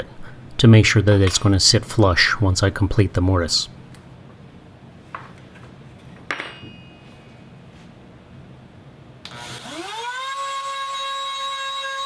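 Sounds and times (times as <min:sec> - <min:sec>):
sharp metallic clink: 0:06.3 - 0:07.3
router motor whine: 0:09.3 - 0:12.0.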